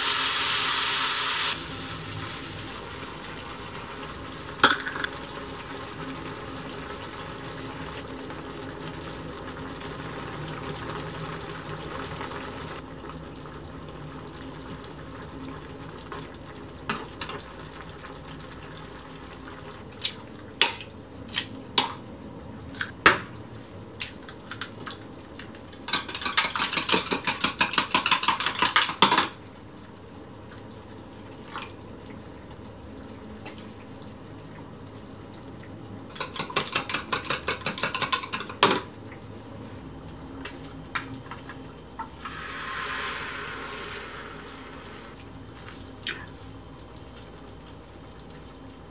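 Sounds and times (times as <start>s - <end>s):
stew bubbling in a pan: 1.5s - 23.9s.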